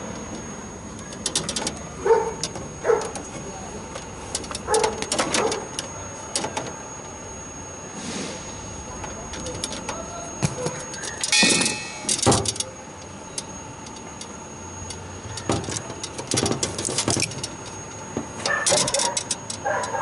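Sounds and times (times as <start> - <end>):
metal parts clinking and rattling: 10.9 - 14.3, 15.2 - 20.0.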